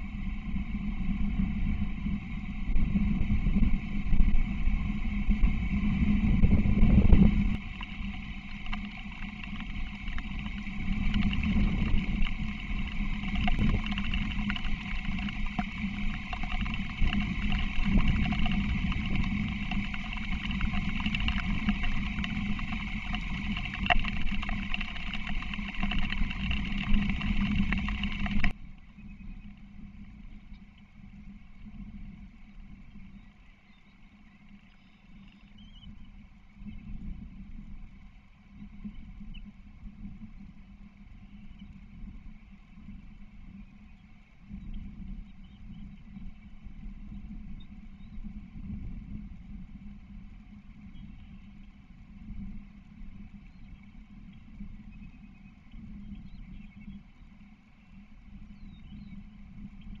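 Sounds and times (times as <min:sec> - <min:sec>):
wind buffeting microphone: 0:00.0 - 0:33.3, 0:35.6 - 1:00.0.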